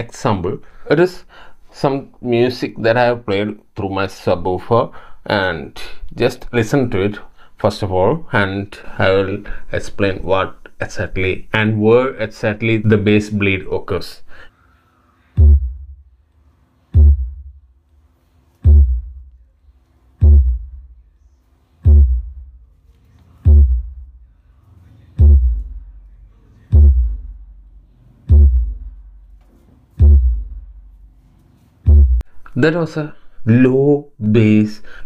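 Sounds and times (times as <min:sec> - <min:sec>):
deep bass kicks from subwoofer: 0:15.4 - 0:16.2, 0:17.0 - 0:17.7, 0:18.6 - 0:19.4, 0:20.2 - 0:21.1, 0:21.8 - 0:22.7, 0:23.4 - 0:24.3, 0:25.2 - 0:29.4, 0:30.0 - 0:31.1, 0:31.9 - 0:32.3.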